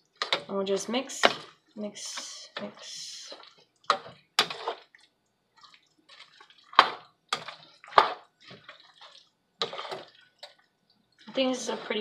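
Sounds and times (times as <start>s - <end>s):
wet squelching and scraping: 1.1s - 12.0s
utensil clacking against pan: 2.1s - 4.9s, 6.2s - 10.6s.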